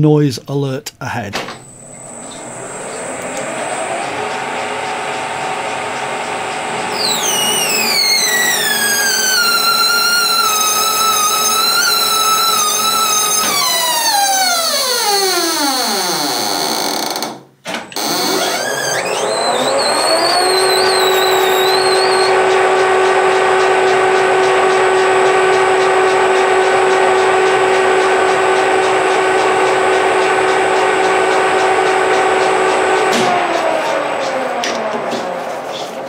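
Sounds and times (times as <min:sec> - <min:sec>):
lathe spindle whining: 0:01.6 - 0:15.6, 0:18.0 - 0:36.0
wavering high squeal: 0:06.9 - 0:15.2, 0:18.2 - 0:22.4.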